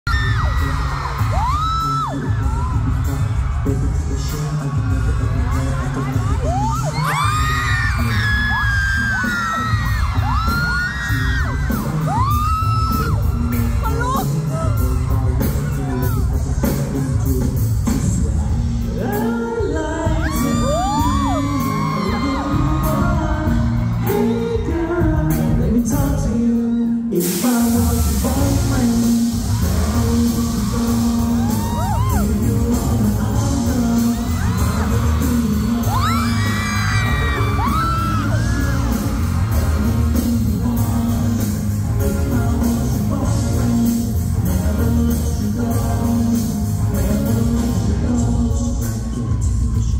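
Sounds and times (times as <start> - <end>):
audience screaming and cheering: 0.0 - 49.9
pop song over loudspeakers: 0.0 - 49.9
loud hiss: 27.1 - 48.0.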